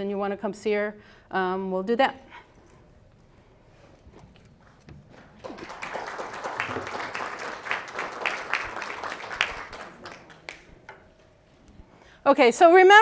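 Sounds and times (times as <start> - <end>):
audience applauding: 5.2 - 11.0.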